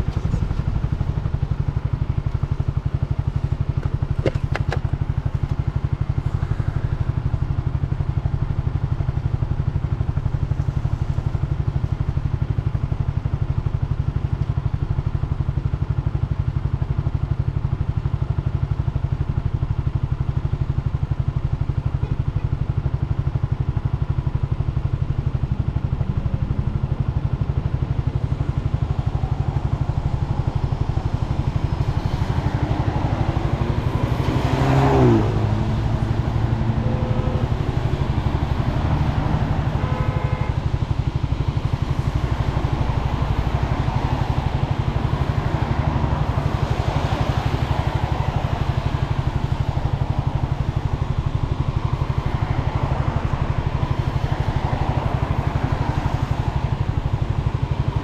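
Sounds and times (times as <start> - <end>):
passing vehicle: 0.0 - 7.4, 24.9 - 58.0
scooter engine idling: 0.0 - 34.1, 34.8 - 58.0
traffic: 0.0 - 58.0.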